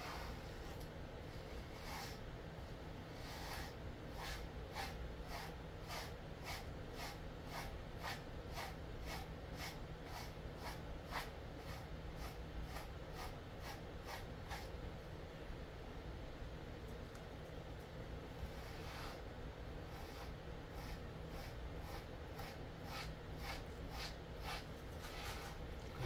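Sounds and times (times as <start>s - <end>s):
brush swishing through dog fur: 0.0s - 2.2s, 3.1s - 14.7s, 18.5s - 19.2s, 19.9s - 25.7s
low steady hum: 0.0s - 26.0s.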